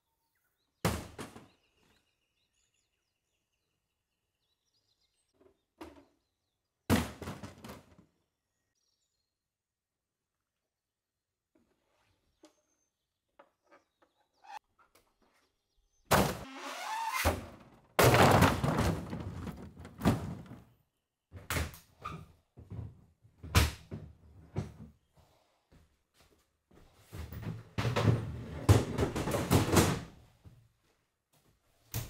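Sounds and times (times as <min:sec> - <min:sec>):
wooden chests crashing: 0:06.9 - 0:08.0, 0:17.2 - 0:20.7.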